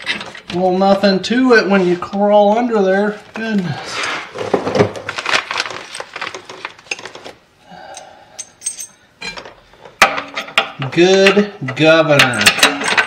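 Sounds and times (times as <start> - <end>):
metal hardware clinking and rattling: 0.0 - 0.6, 7.9 - 13.0.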